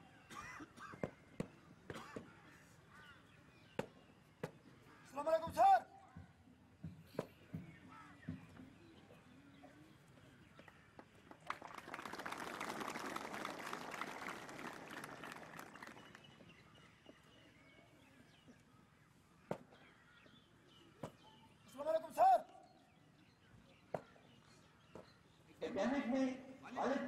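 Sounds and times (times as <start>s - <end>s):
crowd applauding: 11.3s - 16.4s.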